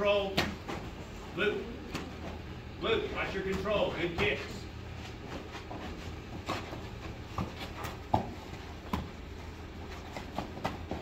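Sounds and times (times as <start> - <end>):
feet on carpeted floor: 3.7 - 11.0
kicks hitting foam pads: 6.4 - 9.2.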